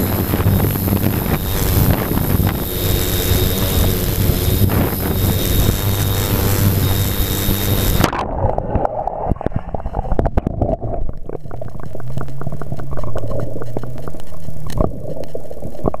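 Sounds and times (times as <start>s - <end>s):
low steady hum: 0.0s - 16.0s
water bubbling and gurgling: 8.0s - 16.0s.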